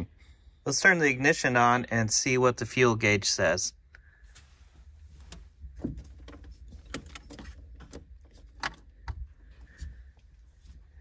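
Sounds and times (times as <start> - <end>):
car keys jangling and clicking: 5.3 - 9.2.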